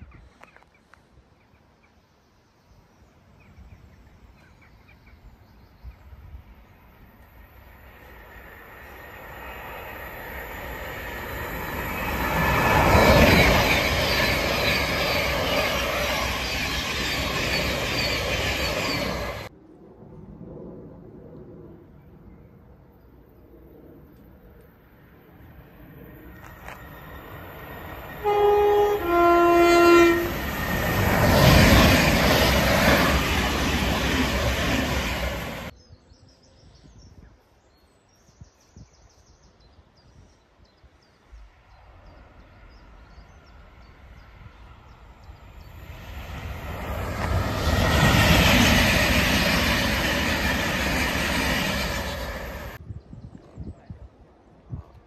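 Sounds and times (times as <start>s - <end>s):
train running past: 6.7s - 19.5s, 25.0s - 35.7s, 41.4s - 52.8s
electric train running through: 6.8s - 19.5s, 26.0s - 35.7s, 41.6s - 52.8s
two-tone train horn: 28.2s - 30.5s.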